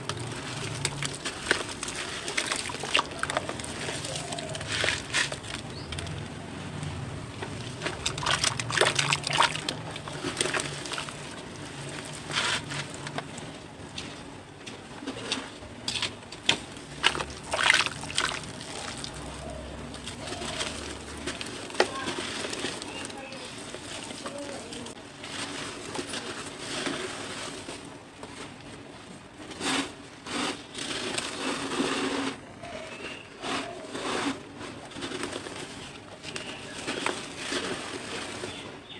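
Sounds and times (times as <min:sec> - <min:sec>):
hands sloshing wet cement in water: 0:00.1 - 0:06.2, 0:07.4 - 0:13.0, 0:15.8 - 0:24.8.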